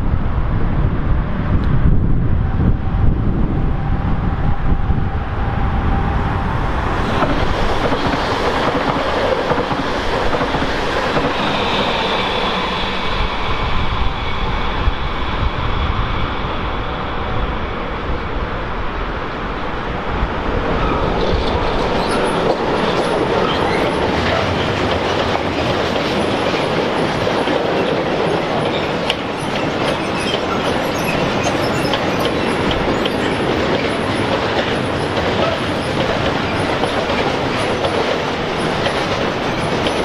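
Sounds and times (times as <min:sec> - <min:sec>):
train wheels rumbling on rail: 0:00.0 - 0:40.0
high metallic squeal: 0:11.0 - 0:17.6.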